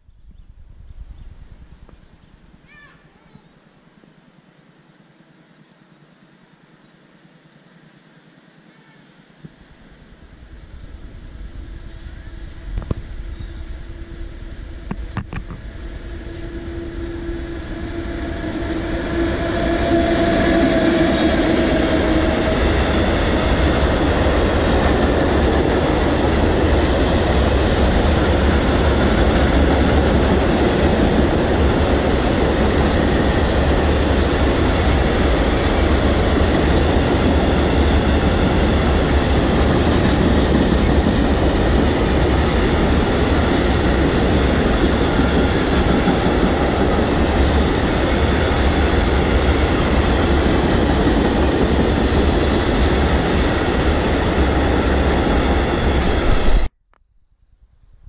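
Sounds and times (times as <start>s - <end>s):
electric locomotive: 3.8s - 56.7s
train wheels rumbling: 10.0s - 56.7s
wheels clacking over rail joints: 36.0s - 47.7s.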